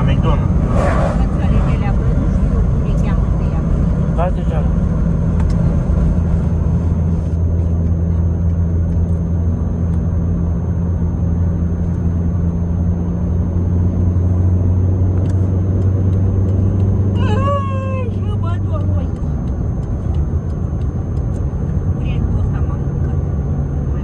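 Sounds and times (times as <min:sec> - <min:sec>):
car engine and road drone: 0:00.0 - 0:24.0.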